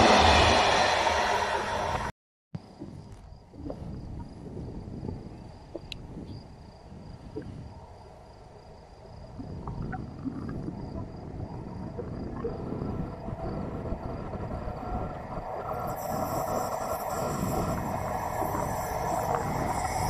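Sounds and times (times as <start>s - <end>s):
train wheels on rails: 0.0s - 2.1s, 15.7s - 20.0s
distant freight train rumble: 0.0s - 9.4s, 10.2s - 20.0s
insect trill: 2.6s - 20.0s.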